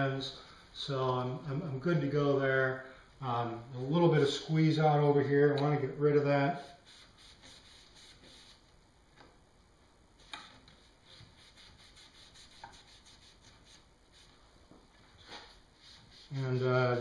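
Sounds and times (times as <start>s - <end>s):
faint rubbing of hands wiping: 6.6s - 8.7s, 10.5s - 17.0s.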